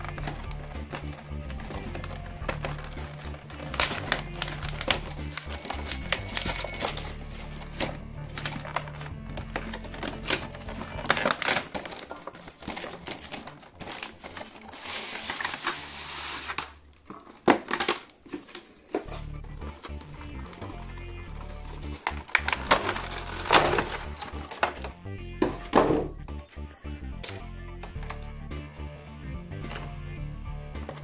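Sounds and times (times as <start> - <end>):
background music: 0.0 - 16.6, 18.9 - 31.0
cardboard box being handled: 0.0 - 17.3
sliding rustle: 11.7 - 16.7.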